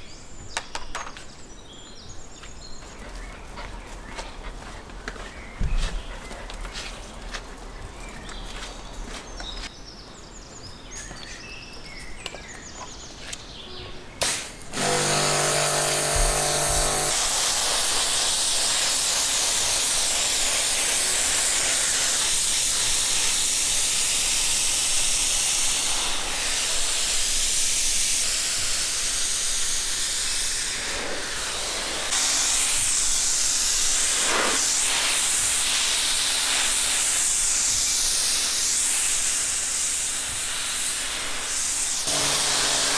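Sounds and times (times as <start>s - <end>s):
high-pressure water jet hissing: 14.2s - 42.9s
pressure washer motor humming: 14.7s - 29.4s, 30.0s - 42.9s.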